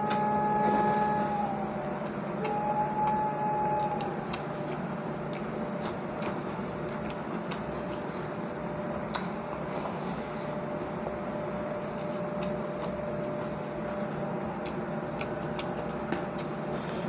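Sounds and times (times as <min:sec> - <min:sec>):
steady background hum: 0:00.0 - 0:17.0
small sharp mouth clicks: 0:03.8 - 0:08.1, 0:09.0 - 0:10.0, 0:12.3 - 0:13.3, 0:14.6 - 0:16.6
soft chewing: 0:03.8 - 0:11.0, 0:11.6 - 0:17.0.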